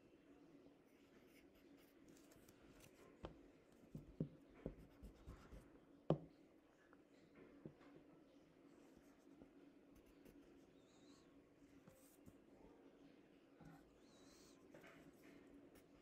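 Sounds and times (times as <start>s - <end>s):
pencil scratching on paper: 0.9s - 2.9s, 4.6s - 5.7s.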